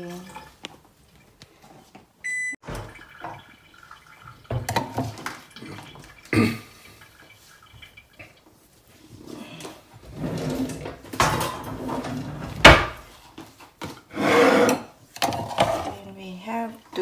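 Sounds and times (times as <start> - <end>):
short electronic beep: 2.2 - 2.6
kitchen knocks and clatters: 2.6 - 6.2, 10.0 - 16.1.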